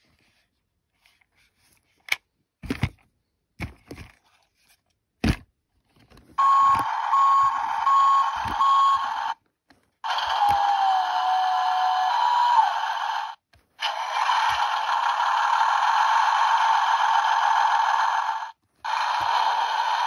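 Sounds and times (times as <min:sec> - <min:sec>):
backup alarm beeps: 0:06.4 - 0:09.4
toy machine sound effect: 0:06.4 - 0:09.4, 0:10.0 - 0:20.0.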